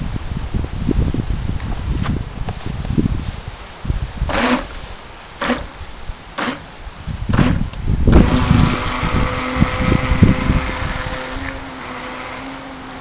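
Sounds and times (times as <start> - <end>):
toy boat electric motor whine: 4.3 - 4.7, 7.4 - 13.0.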